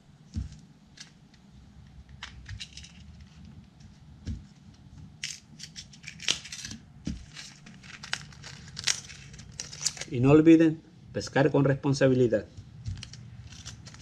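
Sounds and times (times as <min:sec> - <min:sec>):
plastic packets crinkling: 0:05.3 - 0:10.2, 0:12.9 - 0:14.0.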